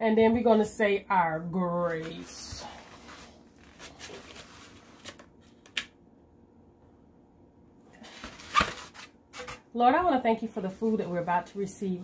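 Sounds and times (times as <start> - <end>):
rustling and handling noises: 1.8 - 5.9, 7.9 - 11.7.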